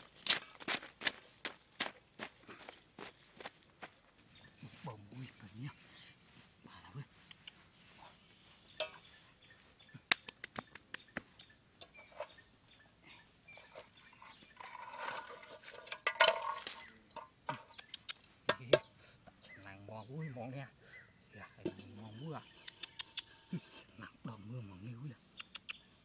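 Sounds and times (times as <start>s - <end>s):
taps and knocks on soil: 10.0s - 11.4s, 16.5s - 18.9s
quick clicks: 25.4s - 25.8s.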